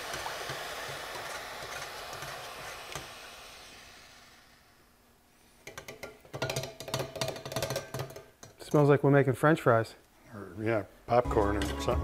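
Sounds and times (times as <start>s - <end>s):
hot steel sizzling in oil: 0.0s - 4.9s.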